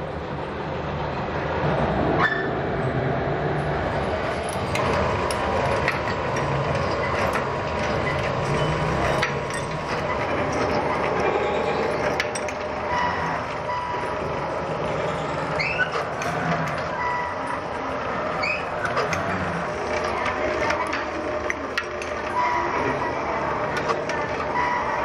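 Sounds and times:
rising squeals: 0:03.9 - 0:25.0.

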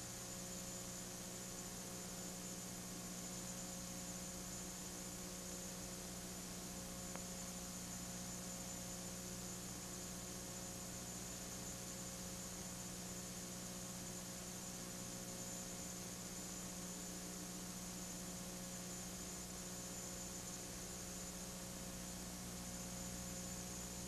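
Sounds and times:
faint electrical hum: 0:00.0 - 0:24.0
faint tick: 0:07.1 - 0:07.3.

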